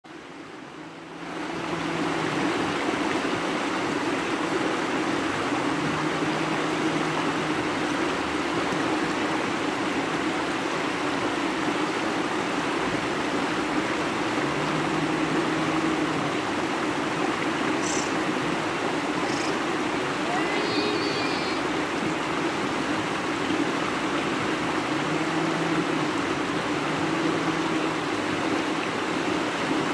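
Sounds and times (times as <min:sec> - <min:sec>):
river rushing over rocks: 0:00.1 - 0:29.9.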